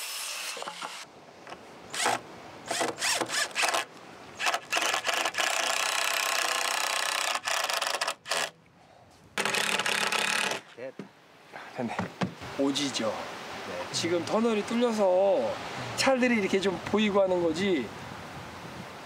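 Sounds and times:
saw cutting wood: 0.0 - 1.1, 1.9 - 8.6, 9.4 - 10.7.

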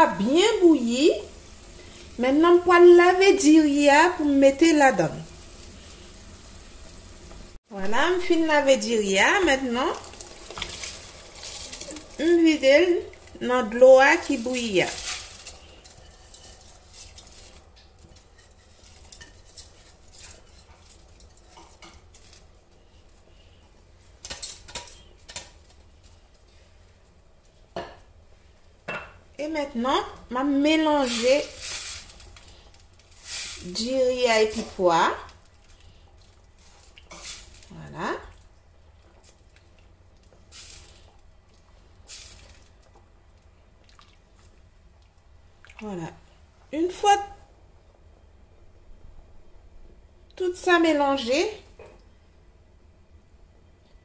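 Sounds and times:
spoon stirring in pot: 14.1 - 22.8.

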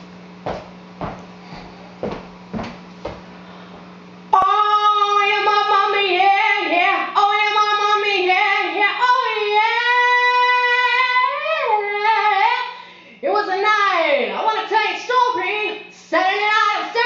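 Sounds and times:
woman singing a cappella: 4.3 - 17.0.

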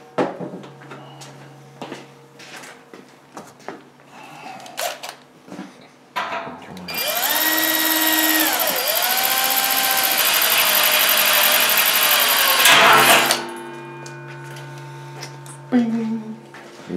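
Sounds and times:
cordless drill drilling metal: 6.9 - 13.4.

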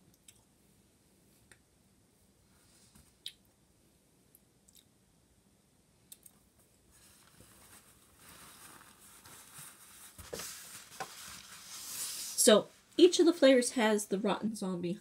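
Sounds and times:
soft rustling: 6.6 - 13.4.

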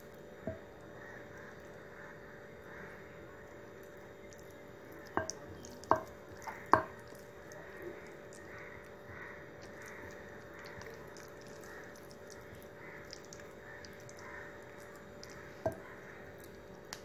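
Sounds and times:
steady low hum: 0.0 - 17.0
wet squishing of paste on meat: 3.8 - 17.0.

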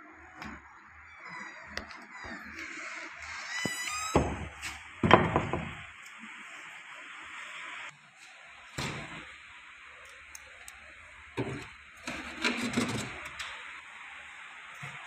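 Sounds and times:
knocks and clunks of items: 4.2 - 5.8.

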